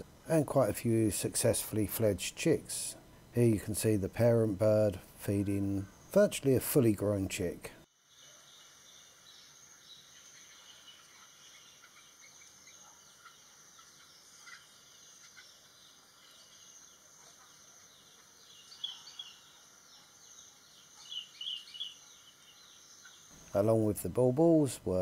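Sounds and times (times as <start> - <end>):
high bird chirps: 8.2 - 23.5.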